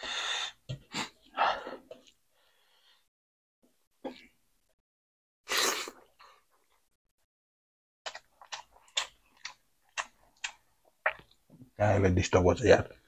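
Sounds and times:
wet crackly chewing: 0:08.1 - 0:11.4.

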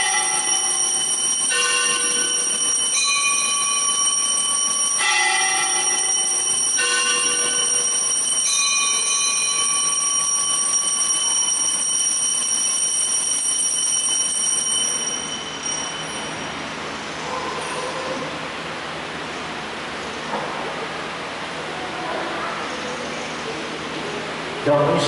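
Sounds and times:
altar bells ringing: 0:00.0 - 0:17.7.

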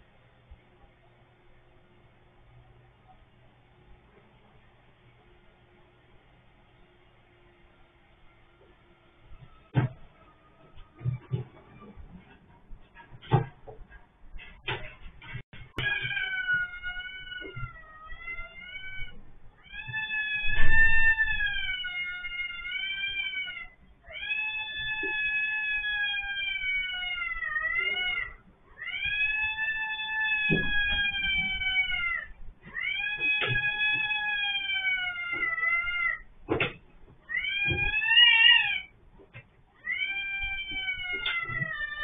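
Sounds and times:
knocks and thumps: 0:09.4 - 0:16.6, 0:30.4 - 0:31.8, 0:36.4 - 0:38.0
cat yowling in distress: 0:15.8 - 0:36.2.

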